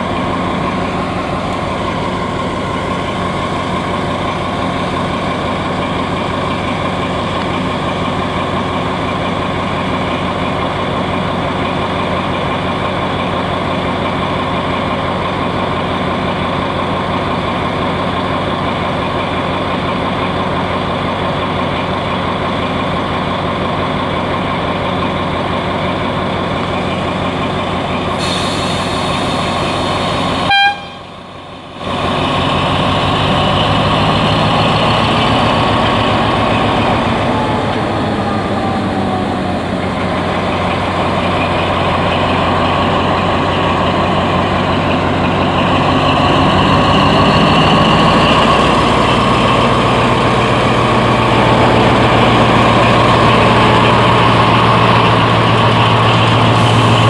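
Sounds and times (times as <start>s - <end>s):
diesel locomotive idling: 0.0s - 57.0s
air hissing: 28.1s - 30.3s.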